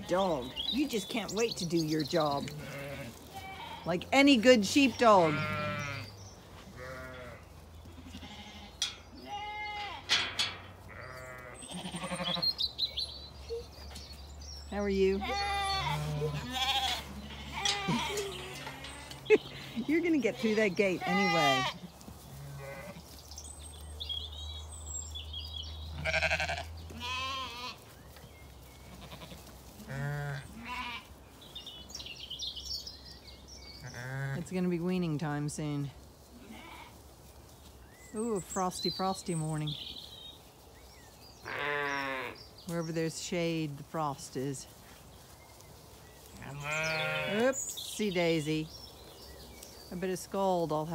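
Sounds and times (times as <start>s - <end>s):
birds twittering: 0.0s - 35.8s, 37.5s - 50.9s
sheep bleating: 2.3s - 3.9s, 4.9s - 10.1s, 10.8s - 12.6s, 15.1s - 23.0s, 25.9s - 27.8s, 28.8s - 31.1s, 33.8s - 34.4s, 36.4s - 37.0s, 41.4s - 42.4s, 46.4s - 47.6s
bird chirping: 10.9s - 27.2s, 45.1s - 50.8s.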